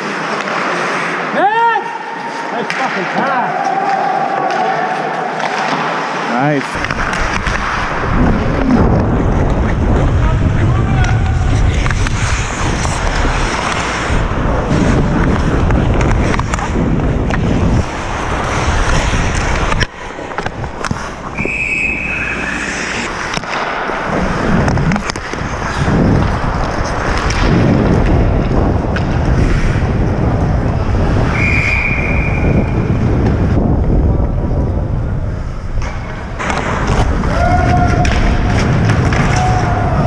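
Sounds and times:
skate blades scraping ice: 0.0s - 1.5s, 2.2s - 33.6s, 35.9s - 40.0s
stick or puck clacks: 5.4s - 8.0s, 11.0s - 17.5s, 18.7s - 21.5s, 22.2s - 24.0s, 24.6s - 29.8s, 37.9s - 39.6s
wind over microphone: 6.8s - 40.0s
referee's whistle: 21.4s - 22.6s, 31.3s - 32.7s.

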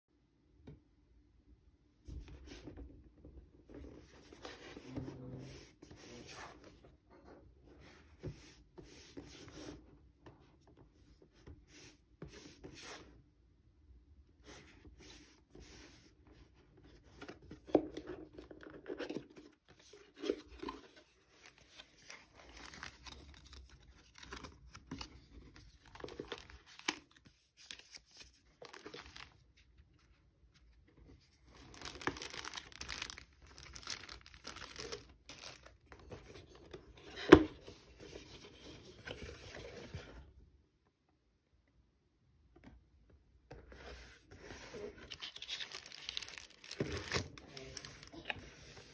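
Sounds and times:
paper and plastic rustling: 17.0s - 40.2s, 44.2s - 48.9s
cardboard box being opened: 31.5s - 40.1s, 44.3s - 48.9s.

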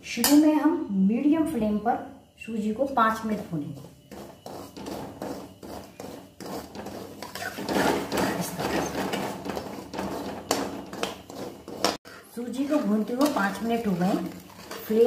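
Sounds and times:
metal ladle scraping a metal pan: 3.8s - 15.0s.

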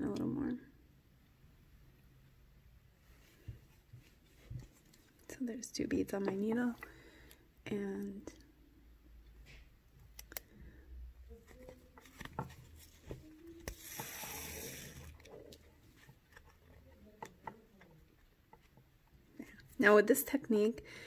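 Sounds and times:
soft rustle: 2.9s - 5.4s.

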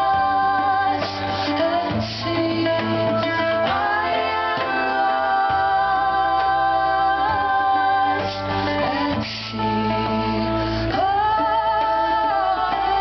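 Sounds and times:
hand drum: 0.0s - 10.2s
keyboard: 0.0s - 13.0s
mandolin: 0.0s - 13.0s
women singing in harmony: 0.0s - 13.0s.

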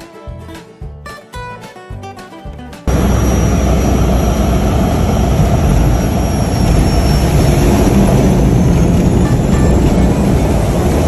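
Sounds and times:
plane engine and propeller drone: 2.9s - 11.0s.

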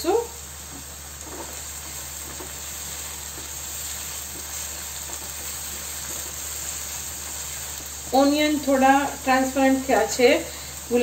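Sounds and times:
onions sizzling in hot oil: 0.0s - 11.0s
wooden spatula stirring: 0.6s - 8.2s.

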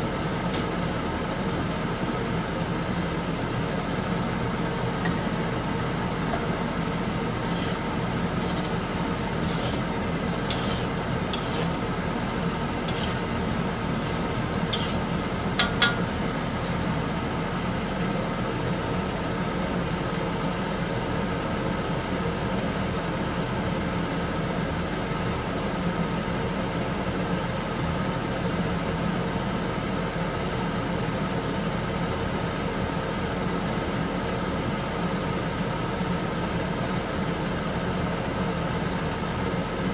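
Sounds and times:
fat boiling in water: 0.0s - 29.4s
steady mechanical hum: 0.0s - 39.9s.

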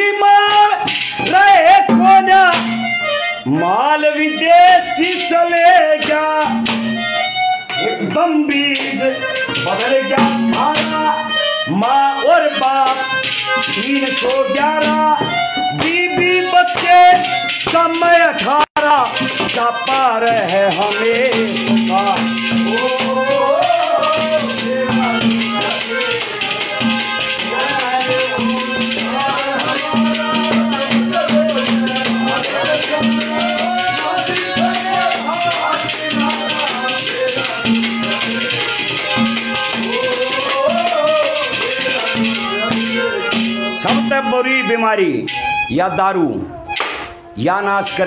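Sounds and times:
percussion beat: 0.0s - 45.8s, 46.7s - 47.3s
harmonium playing: 0.0s - 48.0s
drum strokes: 0.5s - 3.1s, 6.0s - 7.2s, 19.2s - 44.6s
rattling jingling percussion: 4.4s - 7.6s, 12.8s - 45.7s.

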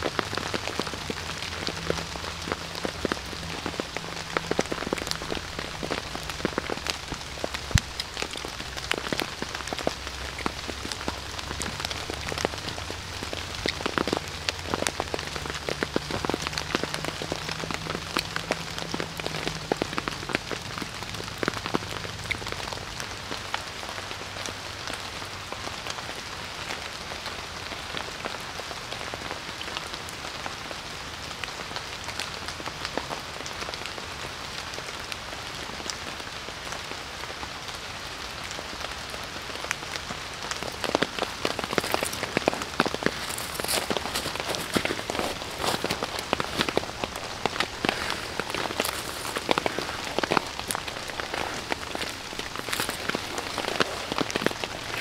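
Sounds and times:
rain falling on a tarp: 0.0s - 55.0s.

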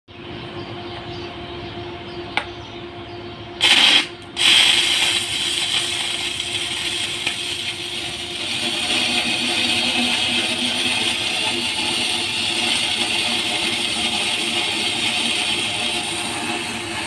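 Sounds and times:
steady hum: 0.1s - 17.0s
welding arc crackling and hissing: 3.6s - 17.0s.

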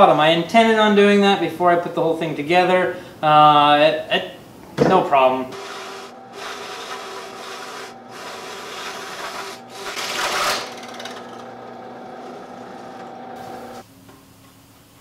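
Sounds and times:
drill bit rasping through wood: 5.5s - 13.8s
drill press motor humming: 5.5s - 13.8s.

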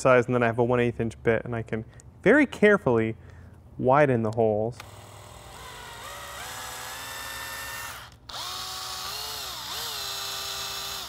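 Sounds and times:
cordless drill whining: 4.8s - 11.0s.

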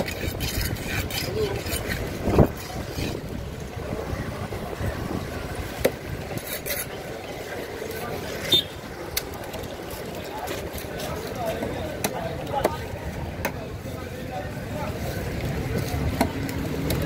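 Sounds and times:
knife slicing and scraping fish: 0.0s - 3.4s, 6.3s - 7.0s
street noise: 0.0s - 17.0s.

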